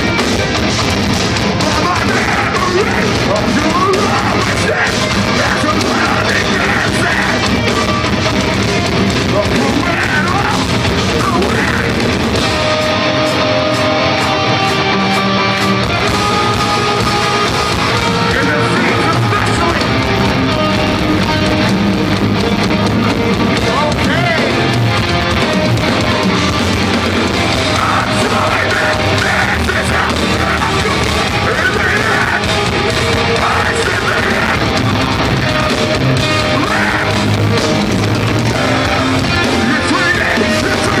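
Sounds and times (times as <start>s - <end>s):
distorted electric guitars: 0.0s - 41.0s
drums: 0.0s - 41.0s
shouted vocals: 1.5s - 8.3s, 9.3s - 20.1s, 27.2s - 41.0s.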